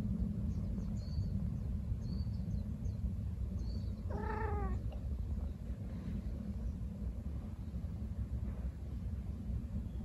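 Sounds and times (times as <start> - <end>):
steady low rumble: 0.0 - 10.0
cat meowing: 4.1 - 4.8.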